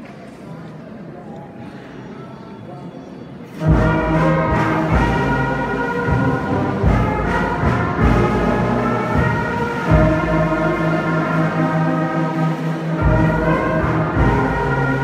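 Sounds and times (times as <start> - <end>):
brass band playing: 3.5 - 15.0.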